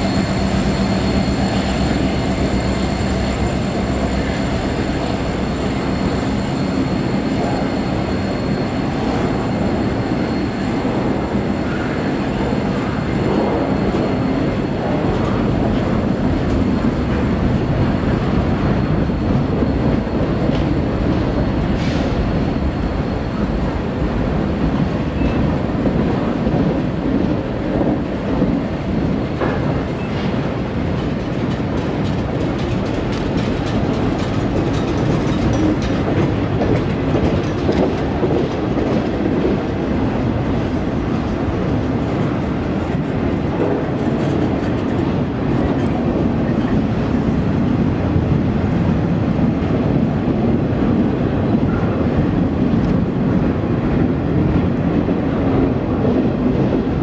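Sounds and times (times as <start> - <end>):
train wheels rolling on rails: 0.0 - 57.0.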